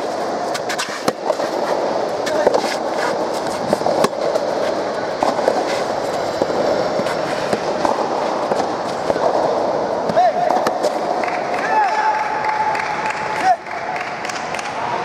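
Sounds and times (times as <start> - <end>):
ball bouncing on clay court: 0.0 - 11.8
steady background noise: 0.0 - 15.0.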